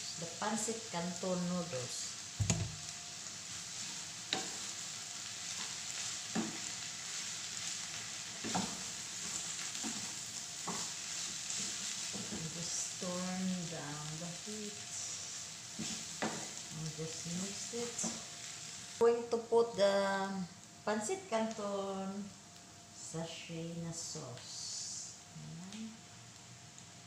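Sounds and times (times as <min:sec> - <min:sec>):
noodles sizzling in frying pan: 0:00.0 - 0:27.0
spatula knocking against pan: 0:02.4 - 0:02.8.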